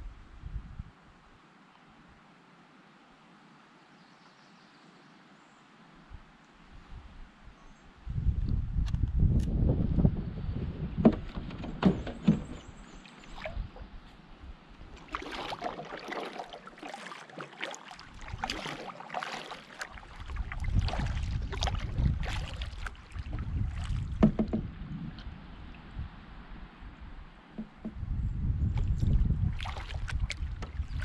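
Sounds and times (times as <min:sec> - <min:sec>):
wind rumble on microphone: 0:00.0 - 0:01.3, 0:06.0 - 0:15.0, 0:20.0 - 0:31.0
sharp knocks: 0:11.0 - 0:12.6, 0:24.2 - 0:24.7, 0:27.6 - 0:28.0
paddle splashing in water: 0:11.0 - 0:25.9, 0:27.5 - 0:28.0, 0:28.7 - 0:31.0.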